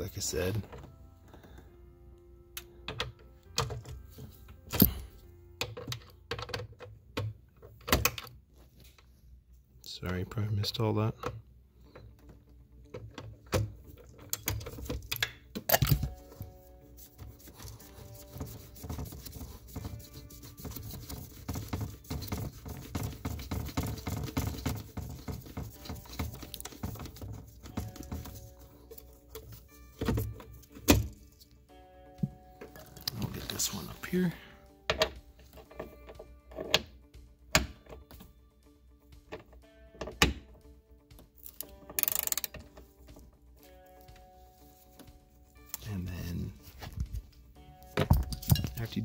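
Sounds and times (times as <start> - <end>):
hand scratching and tapping plastic: 17.4 - 29.6
ratchet clicking: 41.5 - 42.6.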